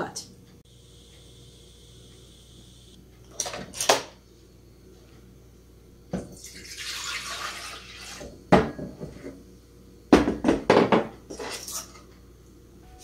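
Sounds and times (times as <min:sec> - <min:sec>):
jug and jar knocking on countertop: 0:10.1 - 0:11.1.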